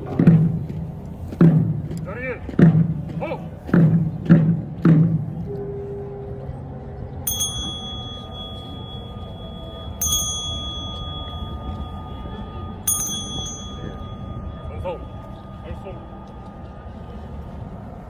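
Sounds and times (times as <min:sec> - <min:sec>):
small metal bell ringing: 0:07.3 - 0:16.7.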